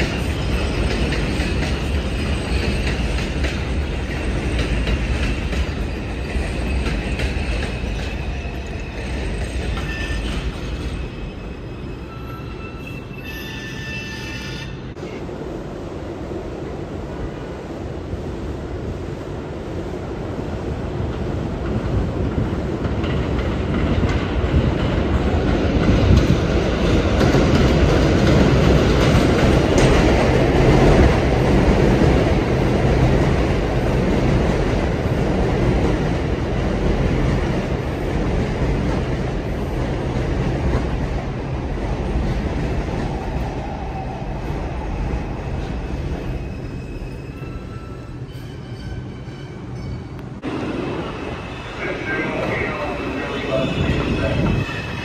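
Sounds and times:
train wheels rumbling on rails: 0.0 - 55.0
faint train squeal: 4.0 - 15.2, 45.7 - 50.4, 51.0 - 55.0.

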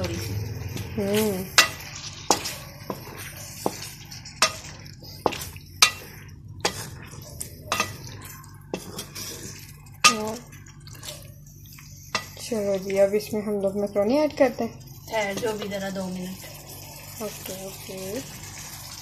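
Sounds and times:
spatula scraping a wok: 0.0 - 13.1, 14.4 - 19.0.

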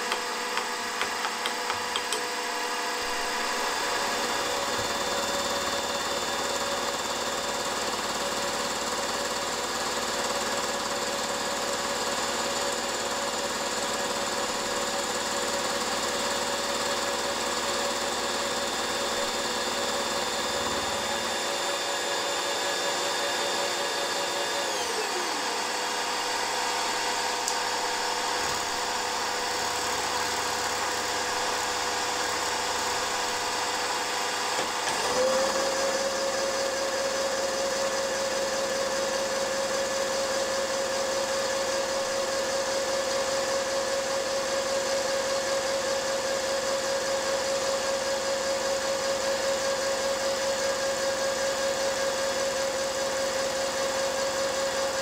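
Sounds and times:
milling machine whine: 0.0 - 55.0
machine knock: 0.1 - 2.3.

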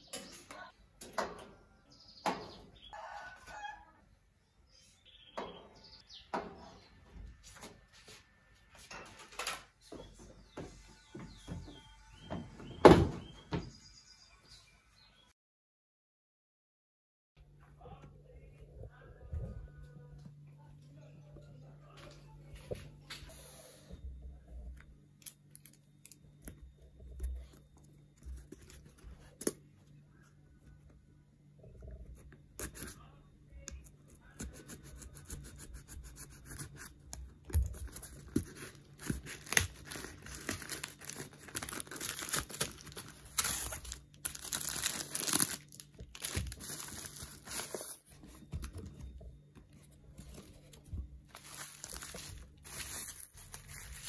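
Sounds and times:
bubble wrap crinkling: 37.5 - 48.4, 50.2 - 54.0
packaging tearing: 37.9 - 48.0, 51.3 - 54.0.

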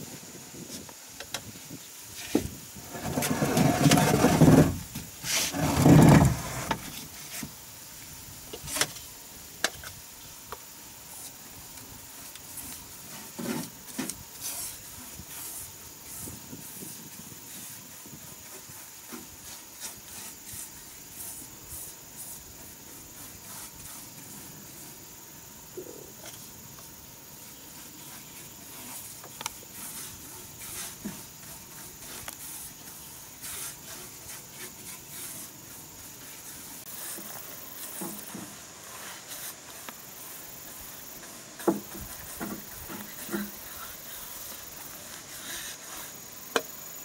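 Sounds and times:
high insect chirr: 0.0 - 47.0
scraping on wooden boards: 2.2 - 7.5, 13.0 - 14.8, 27.7 - 46.8
paintbrush rubbing on wood: 12.2 - 25.0, 27.4 - 46.9.

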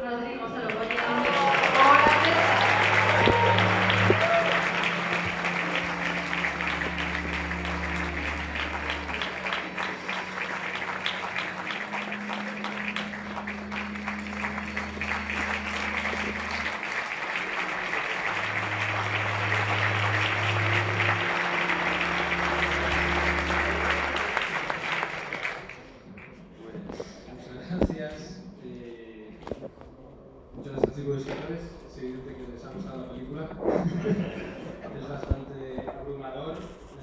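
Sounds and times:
audience applauding: 0.5 - 26.4
music with low held notes: 0.9 - 25.2.

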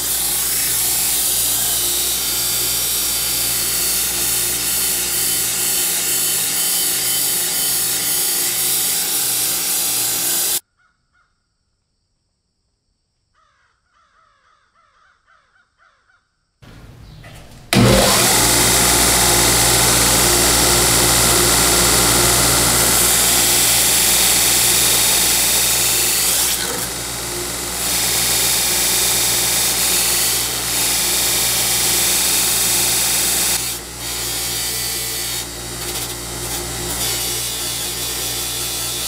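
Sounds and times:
belt sander sanding steel tube: 0.0 - 10.6, 17.7 - 39.0
faint chirping: 16.6 - 17.7.

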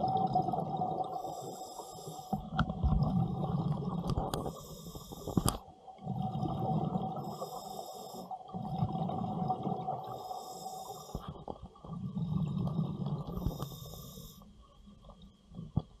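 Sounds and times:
exhaled bubbles rumbling: 0.0 - 1.3, 2.4 - 7.4, 8.5 - 10.2, 11.2 - 13.8
regulator inhalation hiss: 1.1 - 2.4, 4.4 - 5.6, 7.2 - 8.4, 10.0 - 11.3, 13.4 - 14.5.

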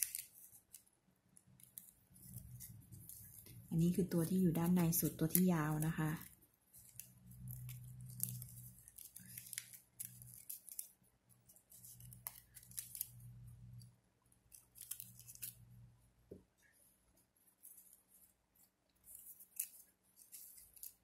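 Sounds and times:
ribbon rustling: 0.0 - 21.0.

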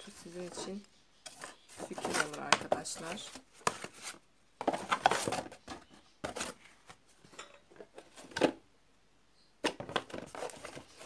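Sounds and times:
cardboard scraping: 0.0 - 7.0, 9.8 - 11.0.

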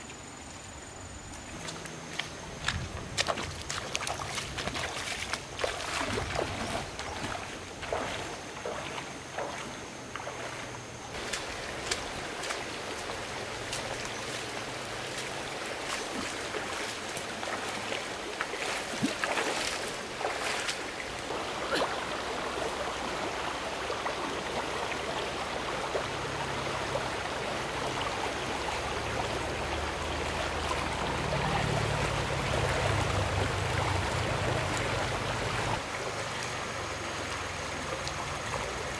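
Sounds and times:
stream water running: 0.0 - 38.9.

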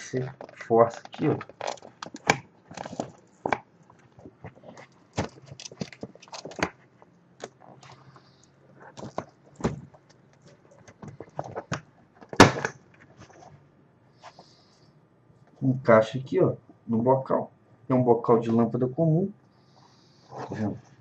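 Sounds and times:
ribs clicking and snapping: 0.3 - 13.4.

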